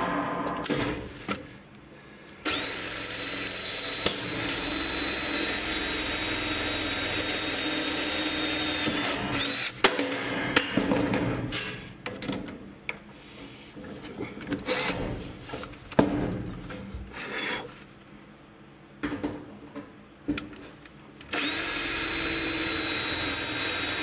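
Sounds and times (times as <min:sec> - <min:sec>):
cordless drill boring sheet metal: 0:02.4 - 0:09.8, 0:21.3 - 0:24.0
drill bit knocking: 0:21.3 - 0:24.0.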